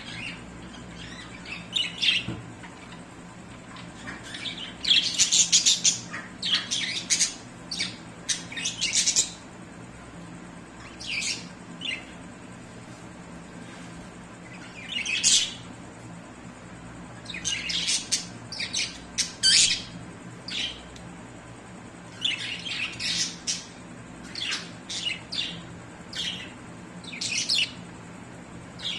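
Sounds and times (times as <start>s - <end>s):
budgerigars chirping and squawking: 0.0s - 3.0s, 3.7s - 9.4s, 14.5s - 15.6s, 17.2s - 20.8s, 22.1s - 27.8s.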